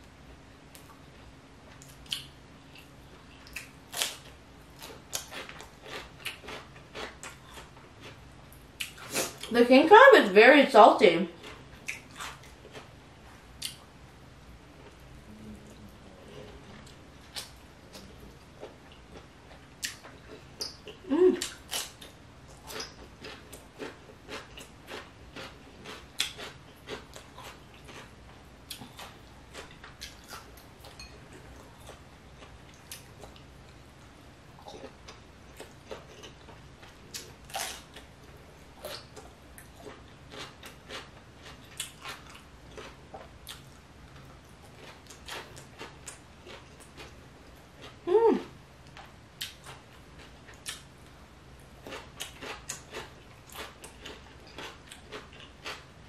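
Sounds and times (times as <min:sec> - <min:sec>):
wet chewing and lip smacks: 0:01.7 - 0:04.2, 0:11.4 - 0:12.9, 0:13.6 - 0:13.8, 0:16.8 - 0:28.1, 0:38.8 - 0:47.2, 0:48.8 - 0:50.9
person humming briefly: 0:15.3 - 0:16.5, 0:21.1 - 0:21.5, 0:48.1 - 0:48.5.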